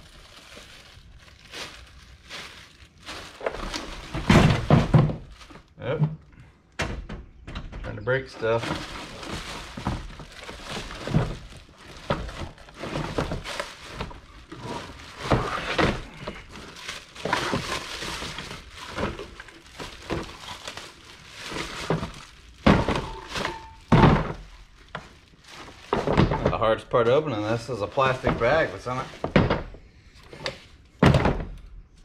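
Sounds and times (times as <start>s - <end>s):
plastic bag crinkling: 0.0s - 5.8s, 8.4s - 26.3s, 27.3s - 29.4s
heavy thunks: 31.0s - 31.7s.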